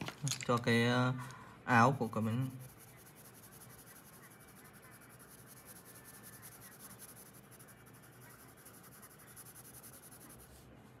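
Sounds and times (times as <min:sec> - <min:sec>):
pencil scratching on paper: 0:02.1 - 0:10.7.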